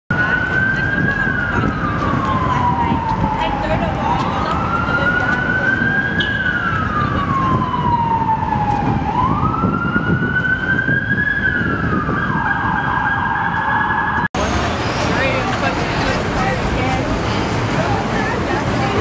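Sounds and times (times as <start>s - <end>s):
emergency siren wailing: 0.1s - 14.4s
city traffic rumble: 0.1s - 19.0s.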